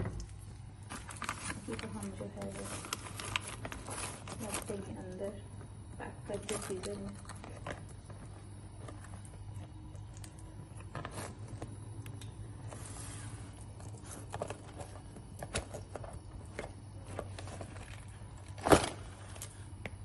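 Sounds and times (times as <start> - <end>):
low hum: 0.0 - 20.0
cardboard rustling and scraping: 0.9 - 4.8.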